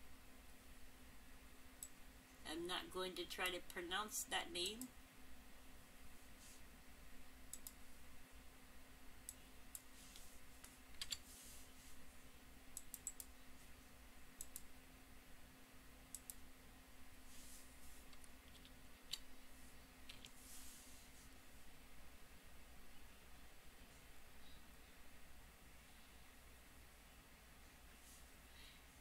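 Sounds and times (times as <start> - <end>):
low electrical hum: 0.0 - 29.0
computer mouse clicks: 7.5 - 7.8, 9.3 - 11.2, 12.8 - 13.3, 14.4 - 14.7, 16.1 - 16.4, 20.1 - 20.4
keyboard keystrokes: 11.0 - 11.2.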